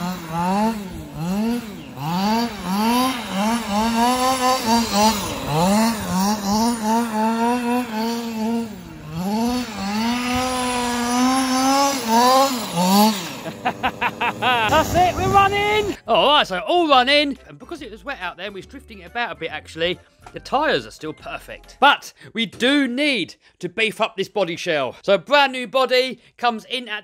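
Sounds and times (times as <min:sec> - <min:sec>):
model truck engine revving: 0:00.0 - 0:16.0.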